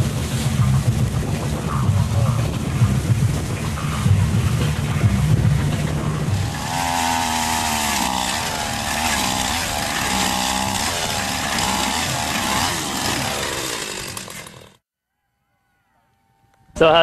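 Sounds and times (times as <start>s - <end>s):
low rumble: 0.1s - 11.6s
ice auger engine running: 6.2s - 14.8s.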